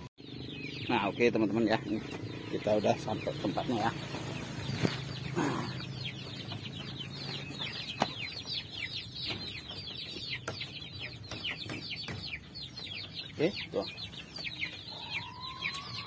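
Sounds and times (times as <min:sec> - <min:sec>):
chicks peeping: 0:00.0 - 0:16.0
rustle: 0:04.0 - 0:05.6.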